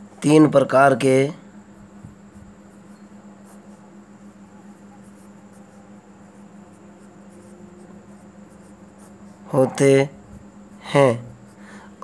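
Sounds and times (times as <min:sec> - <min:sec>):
low electrical hum: 0:00.0 - 0:12.0
pen scratching on paper: 0:02.0 - 0:11.6.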